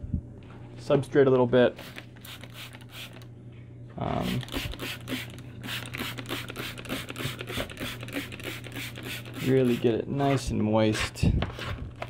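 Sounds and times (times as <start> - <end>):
spray bottle spritzing: 1.8 - 3.2, 4.2 - 9.5.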